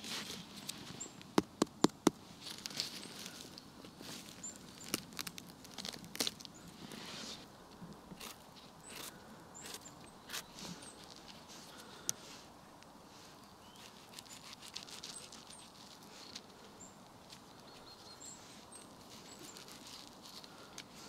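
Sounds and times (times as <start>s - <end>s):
footsteps rustling on forest floor: 2.2s - 7.5s, 13.1s - 21.0s.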